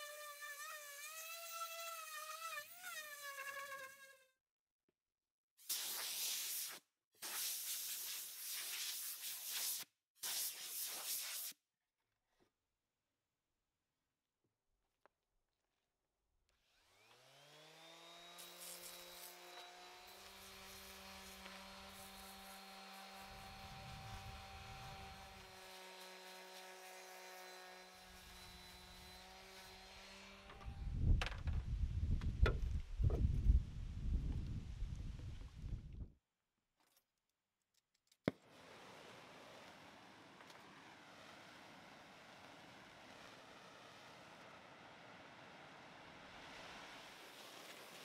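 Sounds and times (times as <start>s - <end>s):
hiss of torch flame: 5.7s - 11.6s
angle grinder whine: 16.7s - 30.9s.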